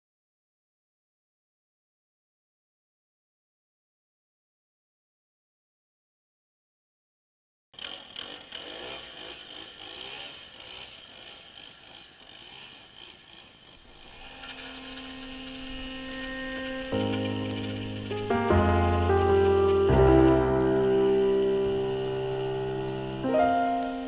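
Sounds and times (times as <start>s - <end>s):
harsh hiss-like noise: 13.8s - 24.0s
music: 14.3s - 24.0s.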